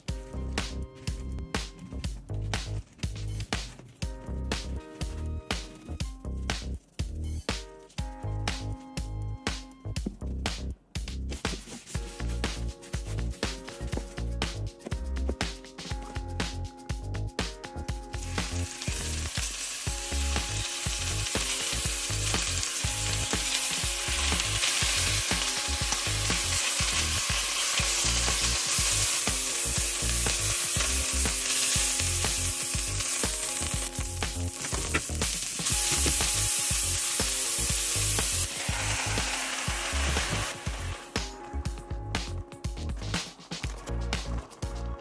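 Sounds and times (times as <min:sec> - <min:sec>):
meat being stirred in a pot: 0:18.2 - 0:41.0
meat sizzling in oil: 0:18.2 - 0:41.2.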